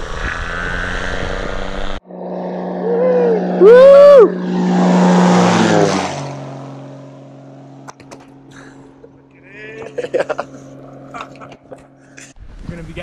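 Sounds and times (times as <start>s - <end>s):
propeller plane engine drone: 0.0s - 12.3s
person whooping: 2.8s - 4.4s.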